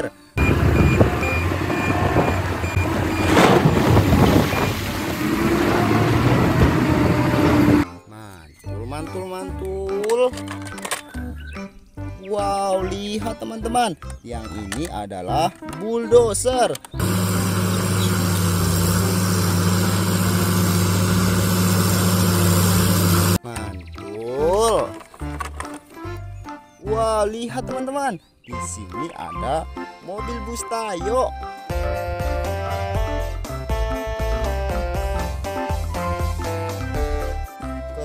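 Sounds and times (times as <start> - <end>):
diesel engine under load: 0.4 - 7.8, 17.0 - 23.4
load rushing into truck: 0.6 - 7.8.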